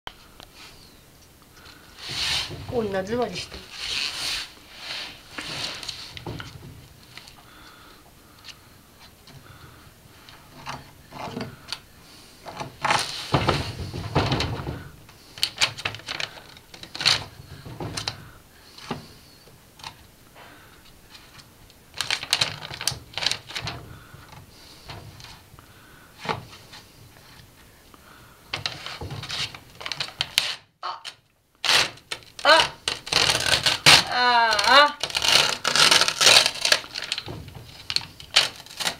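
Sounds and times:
glass sliding door rattling: 12.6 - 14.9, 35.0 - 38.9.

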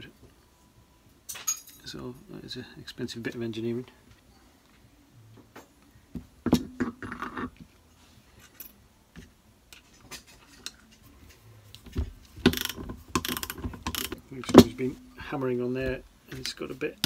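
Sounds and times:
metal parts clinking and knocking: 1.3 - 1.9, 12.4 - 14.9
socket ratchet clicking: 12.4 - 14.2.

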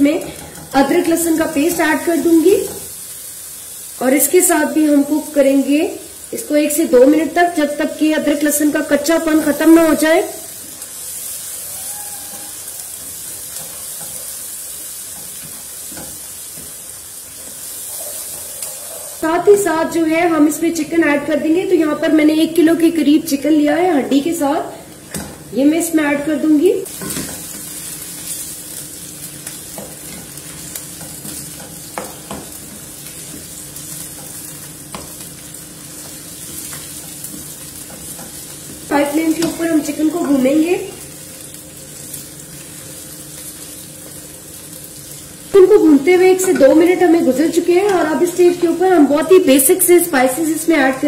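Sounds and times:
onions sizzling in hot fat: 0.0 - 51.0
spatula scraping and knocking pan: 29.4 - 35.2, 36.0 - 40.5, 46.3 - 48.8.

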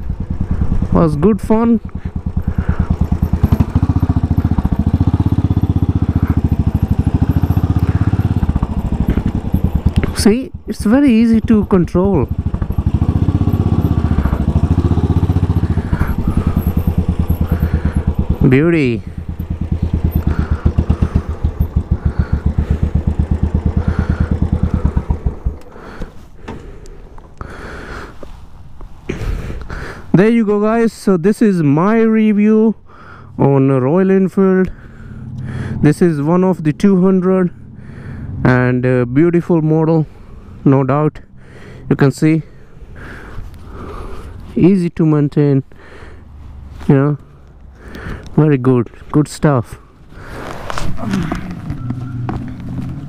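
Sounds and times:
motorcycle engine running: 0.0 - 26.8, 34.6 - 39.4, 50.1 - 53.0.

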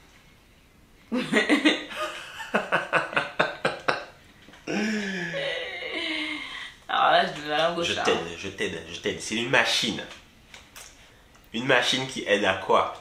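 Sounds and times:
man laughing: 1.1 - 4.1, 4.7 - 6.4.

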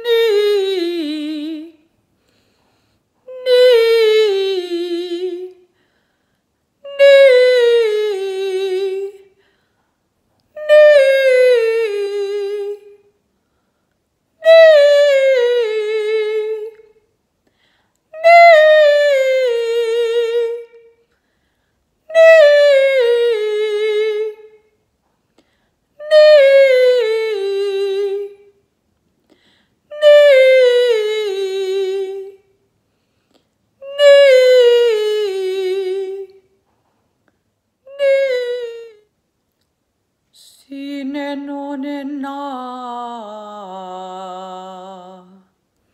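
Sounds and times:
woman singing operatic vocal exercise: 0.0 - 2.0, 3.2 - 5.8, 6.8 - 9.5, 10.5 - 13.2, 14.4 - 17.0, 18.1 - 21.0, 22.0 - 24.7, 26.0 - 28.6, 29.8 - 32.5, 33.8 - 36.5, 37.8 - 39.1, 40.3 - 45.6.

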